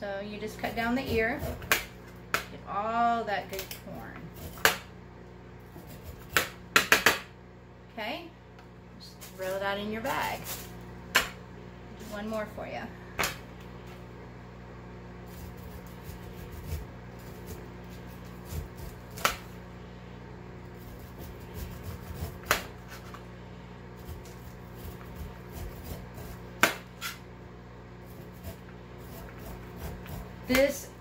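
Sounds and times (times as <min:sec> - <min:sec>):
steady low hum: 0:00.0 - 0:31.0
knife scraping corn kernels: 0:05.7 - 0:06.4, 0:15.3 - 0:19.2, 0:20.7 - 0:23.2, 0:24.0 - 0:27.2, 0:28.1 - 0:30.8.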